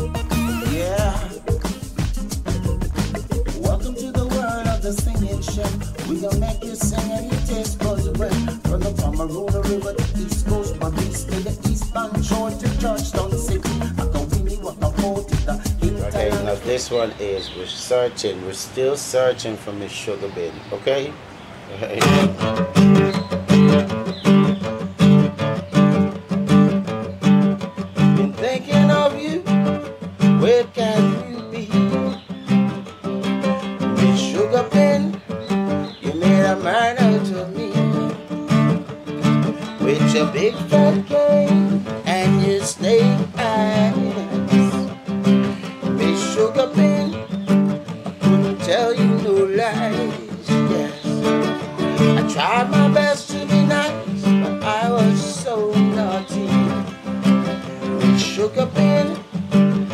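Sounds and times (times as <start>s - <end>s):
classical guitar strumming: 0.0s - 17.0s, 21.9s - 59.9s
man singing: 0.0s - 17.4s, 22.0s - 22.4s, 28.0s - 32.4s, 33.9s - 38.9s, 39.5s - 59.9s.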